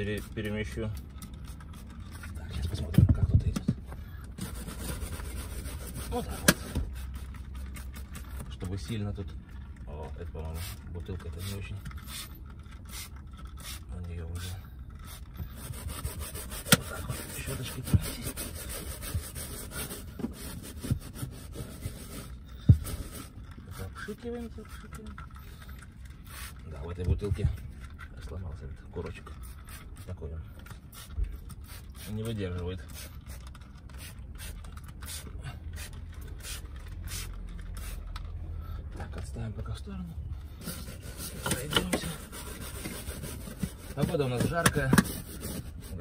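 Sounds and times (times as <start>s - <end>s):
brush scrubbing carpet: 4.4s - 8.1s, 15.0s - 23.9s, 40.6s - 46.0s
spray bottle squirting: 11.4s - 23.4s, 26.2s - 26.6s, 30.8s - 38.2s.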